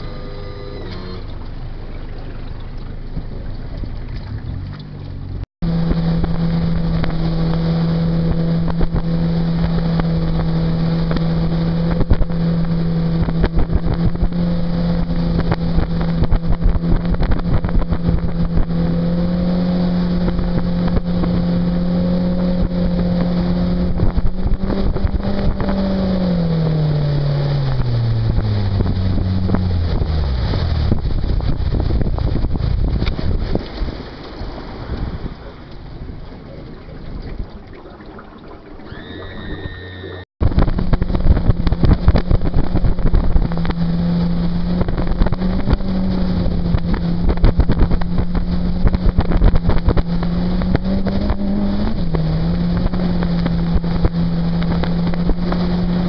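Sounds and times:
outboard motor running: 0:00.0 - 0:56.0
wind buffeting microphone: 0:00.8 - 0:56.0.

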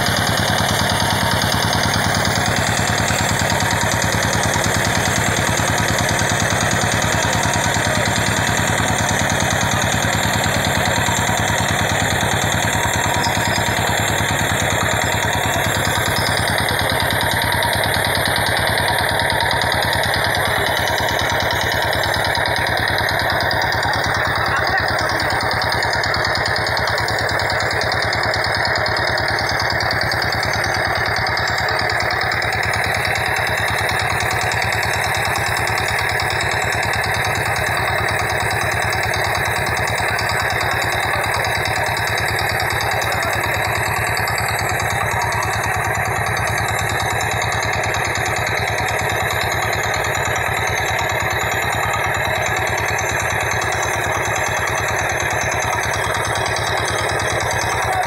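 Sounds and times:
boat engine idling: 0:00.0 - 0:58.0.

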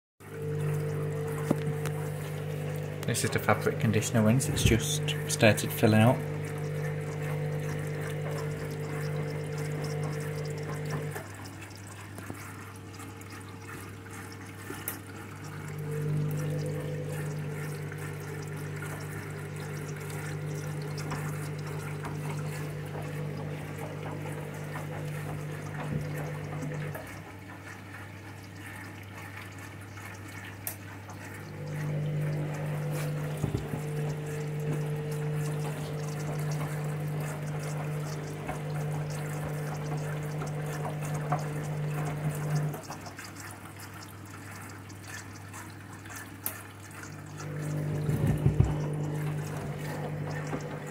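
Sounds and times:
drum motor humming: 0:00.2 - 0:11.4, 0:15.3 - 0:27.4, 0:31.3 - 0:42.9, 0:47.3 - 0:50.9
water running into drum: 0:00.2 - 0:50.9.

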